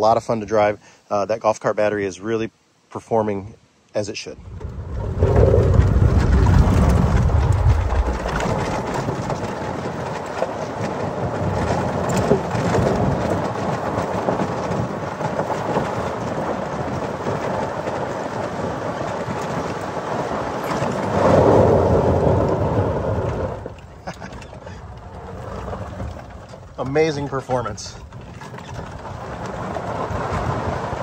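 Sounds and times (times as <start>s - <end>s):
tyres rolling over gravel: 4.3s - 31.0s
wind rushing: 4.4s - 10.0s.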